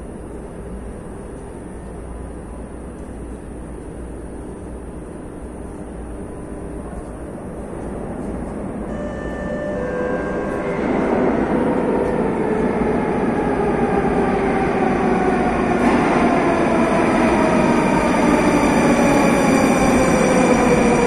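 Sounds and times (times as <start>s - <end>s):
falling whine of train slowing: 0.0s - 21.0s
train rumble: 0.0s - 21.0s.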